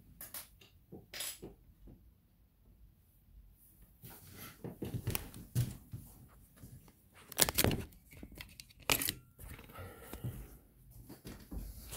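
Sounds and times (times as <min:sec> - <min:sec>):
camera handling noise: 0:07.3 - 0:09.7.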